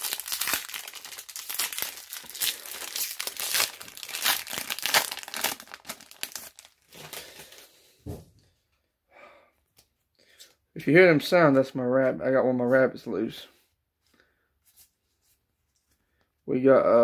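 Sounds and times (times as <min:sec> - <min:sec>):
foil wrapper tearing and crinkling: 0:00.0 - 0:07.6.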